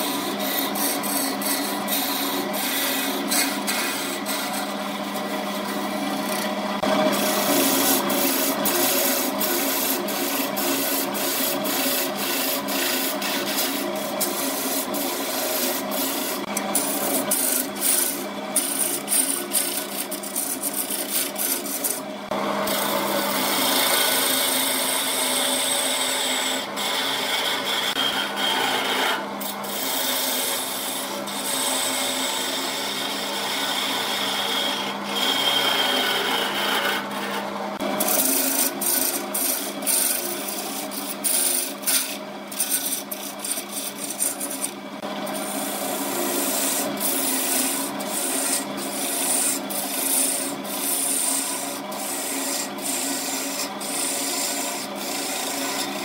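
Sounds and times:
chisel scraping spinning wood: 0.0 - 56.0
wood lathe motor hum: 0.0 - 56.0.

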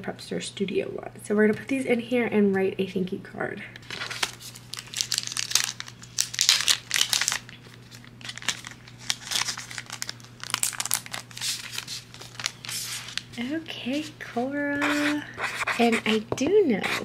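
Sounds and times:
foil pouch crinkling: 3.8 - 13.4.

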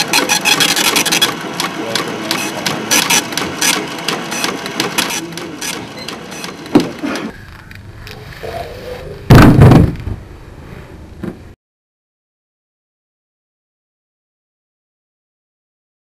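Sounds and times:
mechanical clicking and clattering: 0.0 - 7.3
loud heavy thump: 9.3 - 10.3.

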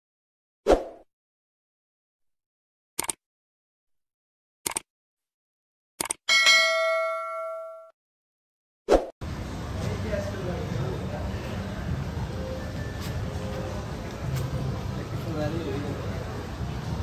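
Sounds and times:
double mouse clicks: 3.0 - 3.2, 4.6 - 4.8
notification bell ringing: 6.3 - 7.9.

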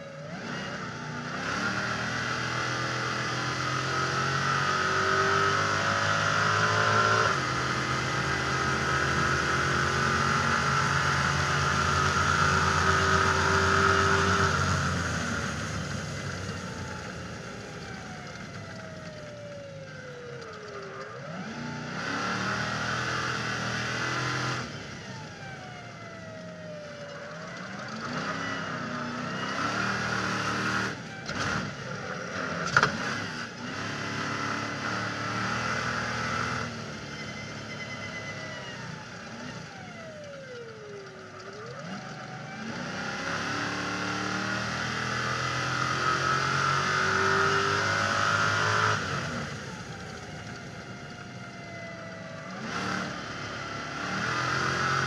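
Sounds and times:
race engine at full throttle: 0.0 - 55.0.

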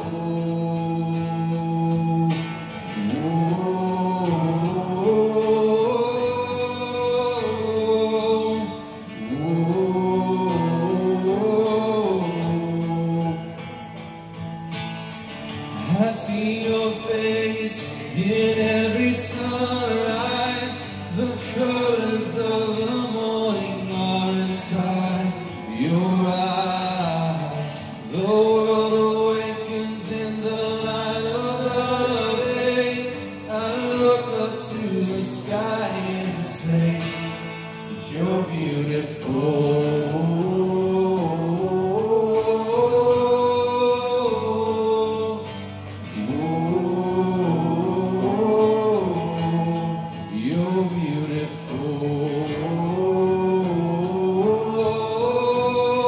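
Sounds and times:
man singing: 0.0 - 56.0.

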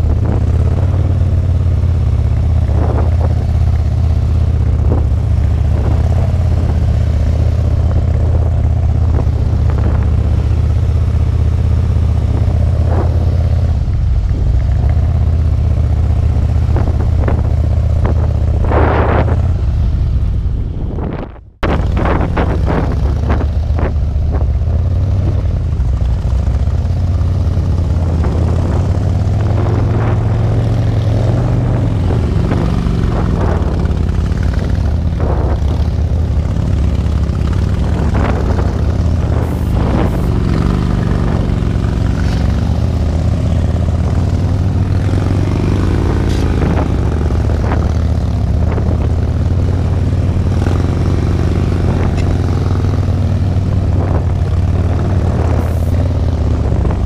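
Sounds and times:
motorcycle engines rumbling: 0.0 - 57.0.

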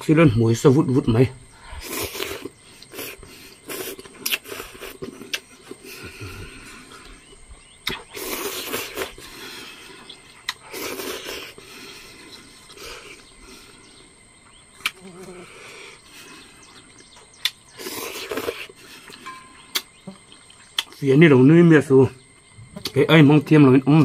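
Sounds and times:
slurping noodles: 8.2 - 9.4, 10.7 - 11.6.

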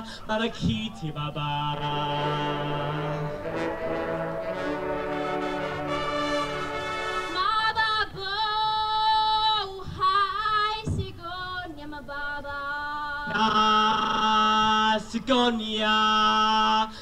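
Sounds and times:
brass band held chord: 1.7 - 7.4
woman singing slow melody: 7.3 - 13.6.

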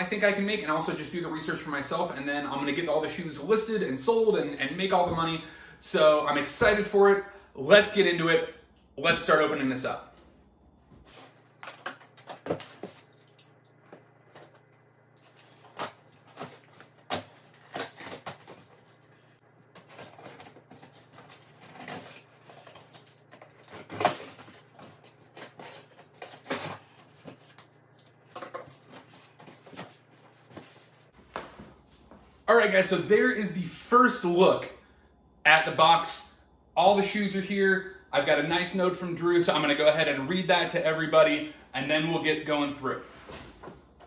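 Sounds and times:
cardboard rustling: 13.9 - 32.4
knife cutting packing tape: 15.5 - 18.8, 19.7 - 27.5.

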